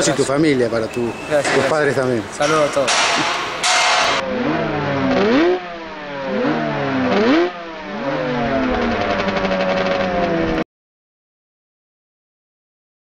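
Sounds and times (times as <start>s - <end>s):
motorcycle engine accelerating: 4.2s - 10.6s.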